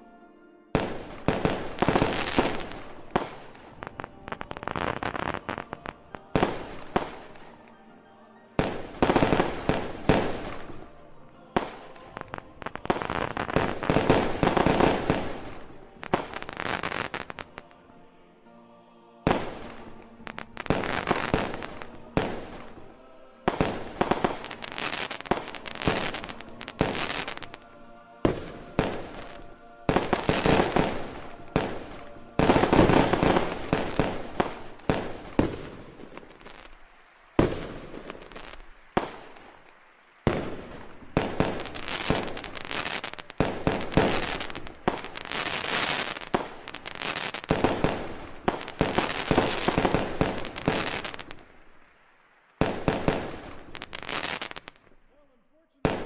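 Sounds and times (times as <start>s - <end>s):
firework shells bursting: 23.5s - 55.0s.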